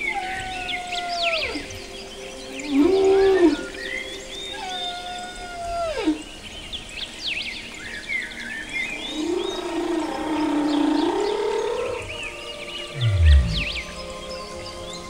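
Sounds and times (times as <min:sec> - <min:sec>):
low rising and falling whale call: 0:12.9 - 0:14.0
whale moans sliding down: 0:13.0 - 0:13.9.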